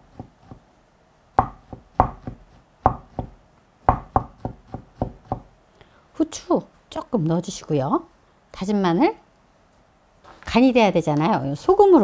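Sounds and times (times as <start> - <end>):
knife chopping on cutting board: 0.0 - 0.6, 1.4 - 5.5.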